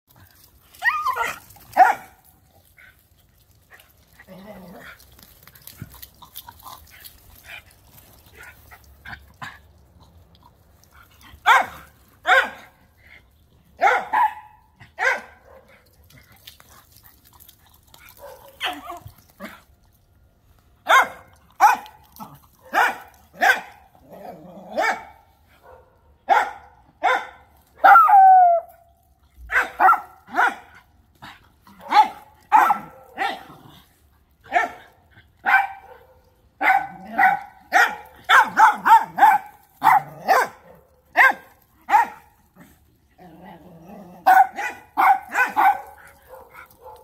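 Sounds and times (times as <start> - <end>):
small dogs play-barking: 0.7 - 2.2, 11.4 - 12.8, 18.1 - 19.6, 20.9 - 28.0, 29.5 - 47.0.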